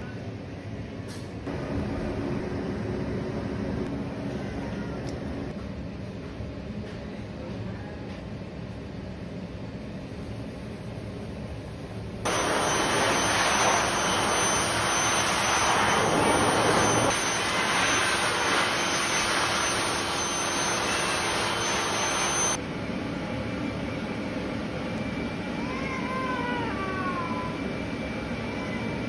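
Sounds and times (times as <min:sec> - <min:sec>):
blow dryer blowing air: 0:12.3 - 0:22.6
cat meowing: 0:25.6 - 0:27.6.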